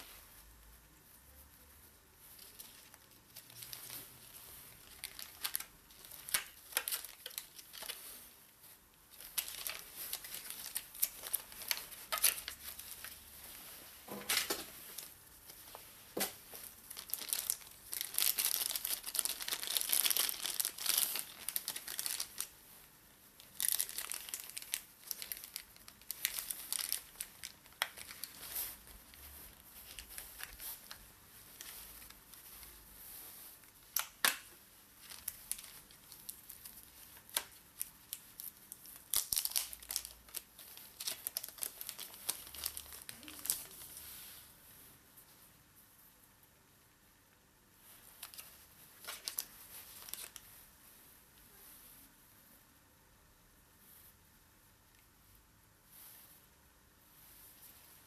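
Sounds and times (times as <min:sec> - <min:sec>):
paper rustling and crinkling: 0:02.2 - 0:22.6, 0:23.4 - 0:34.4, 0:35.0 - 0:44.4, 0:47.8 - 0:50.6.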